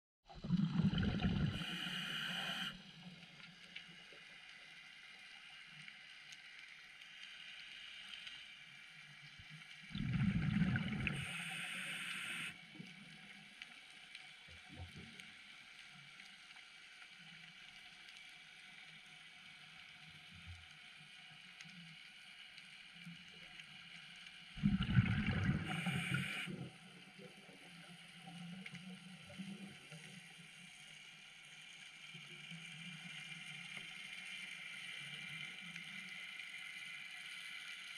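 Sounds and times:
underwater exhaled breath bubbling: 0.3 - 2.8, 9.9 - 12.5, 24.6 - 26.7
faint hiss: 1.6 - 9.7, 11.0 - 14.3, 25.5 - 37.9.

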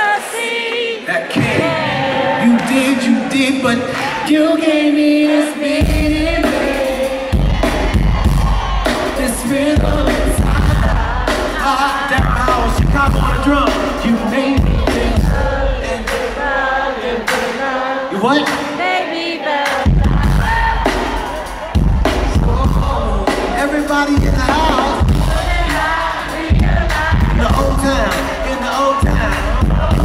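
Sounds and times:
live band with heavy bass and drums: 5.8 - 16.5, 19.6 - 30.0.

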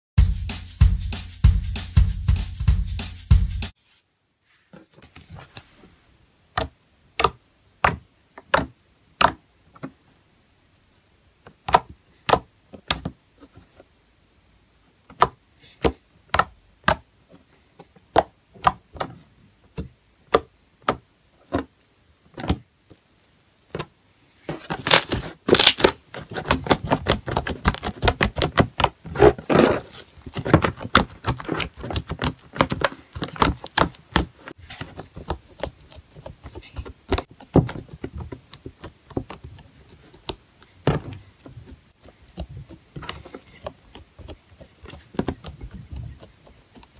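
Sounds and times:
crunchy crackling of beaded slime: 24.8 - 46.9.

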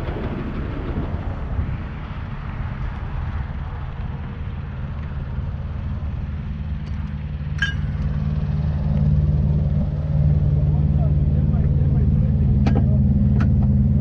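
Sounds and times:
truck engine idling: 3.0 - 14.0
metallic clink: 7.6 - 8.1.

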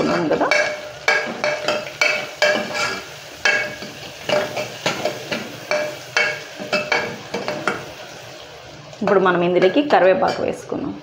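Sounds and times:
onions sizzling in oil: 0.0 - 11.0
metal ladle clinking against pot: 0.5 - 7.8.

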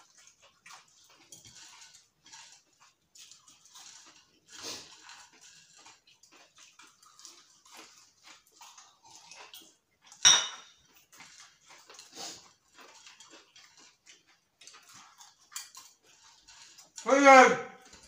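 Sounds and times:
glass clinking on saucer: 10.2 - 10.8
mouth noises: 17.0 - 17.7.

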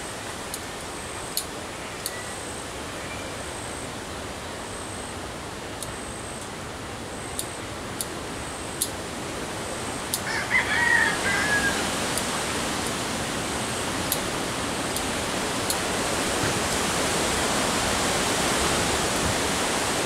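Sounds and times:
rooster crowing: 10.2 - 12.1.

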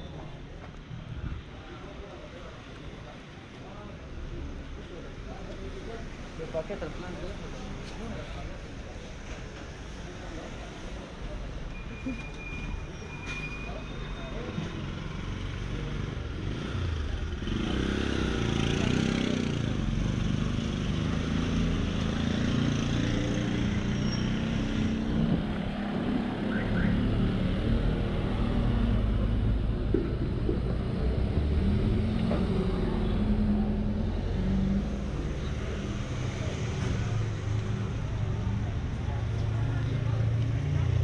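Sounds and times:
road vehicles going by: 0.0 - 41.0
motorcycle passing close: 16.4 - 29.2.

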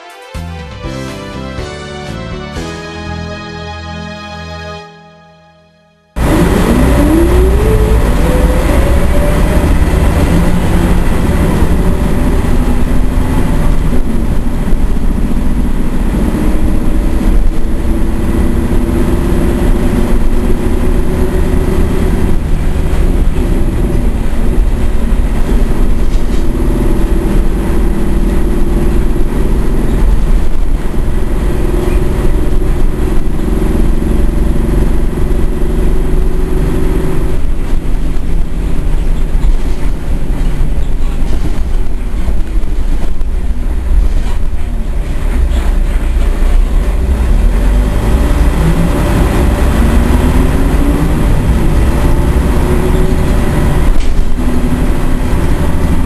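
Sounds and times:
bus engine rumble: 0.3 - 56.0
rising drivetrain whine: 0.9 - 56.0
bus body rattles: 9.4 - 47.8, 49.0 - 56.0.

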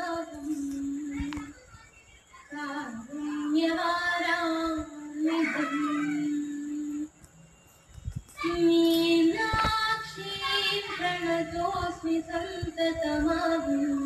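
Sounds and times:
woman singing through loudspeaker: 0.0 - 7.2, 8.4 - 14.0.

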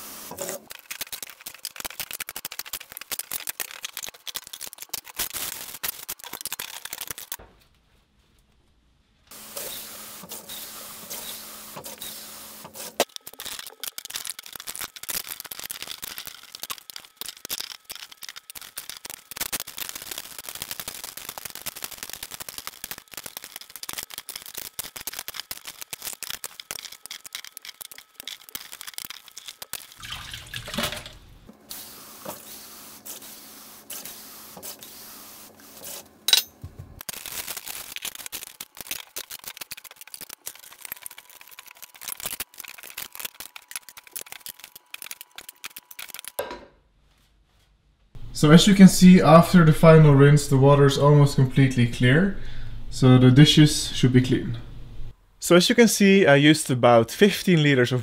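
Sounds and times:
water sloshing and splashing: 30.0 - 31.2.

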